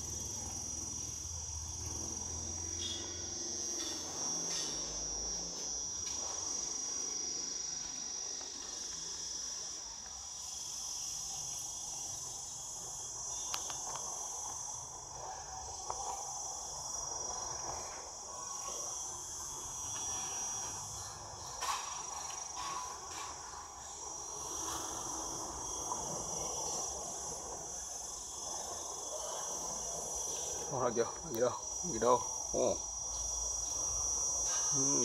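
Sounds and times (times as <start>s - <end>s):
insects chorus drone: 0.0s - 35.0s.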